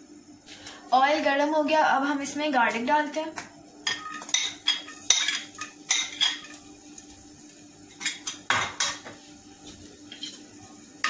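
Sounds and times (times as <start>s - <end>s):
metal spoon clinking on ceramic plate: 3.9s - 6.5s.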